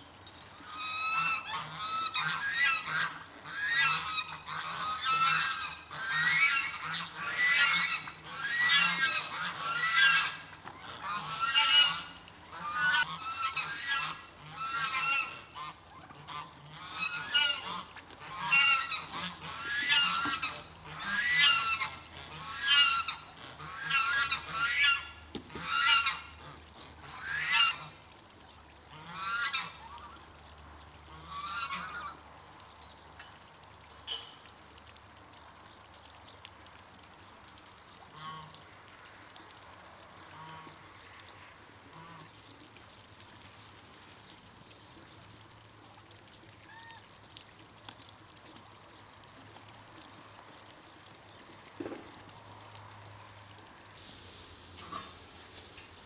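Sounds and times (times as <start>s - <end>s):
geese honking: 0.7s - 28.0s, 28.9s - 30.0s.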